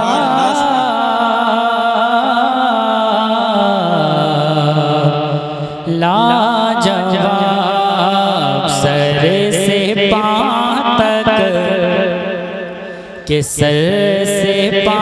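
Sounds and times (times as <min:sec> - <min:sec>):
man singing melismatic line: 0:00.0 - 0:02.4.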